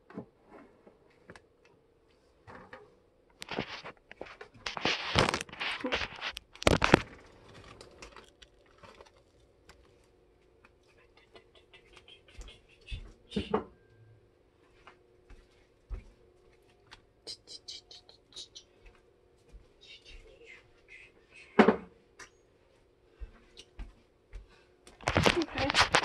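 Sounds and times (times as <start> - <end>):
rustling and scraping handling: 2.0 - 13.2, 24.9 - 26.0.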